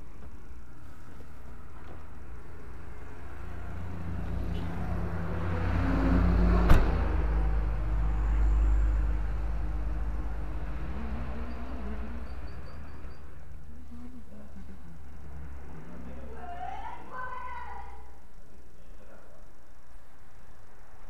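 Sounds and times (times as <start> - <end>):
vehicle passing with low rumble: 0.0 - 16.4.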